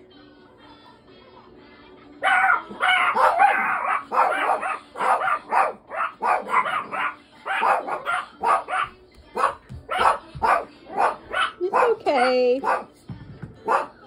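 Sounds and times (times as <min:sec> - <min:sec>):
dog barking: 0:02.2 - 0:13.0, 0:13.6 - 0:14.0.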